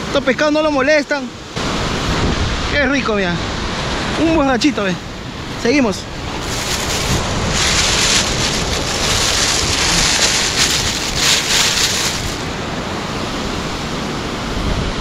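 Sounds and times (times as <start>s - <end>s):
wind rumble on microphone: 1.6s - 15.0s
sea surf washing over rocks: 3.8s - 13.6s.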